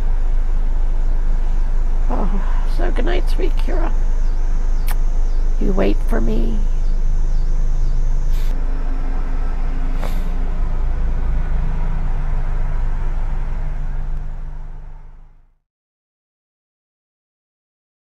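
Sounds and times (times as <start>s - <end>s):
van engine idling: 0.0s - 15.6s
brief hisses: 8.3s - 8.5s, 10.0s - 10.3s.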